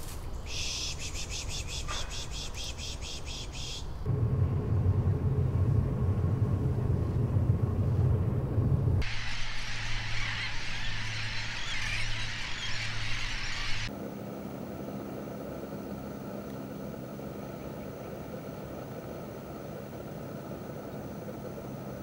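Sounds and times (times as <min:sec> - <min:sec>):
steady low hum: 0:00.0 - 0:22.0
flock of gulls calling: 0:09.1 - 0:13.9.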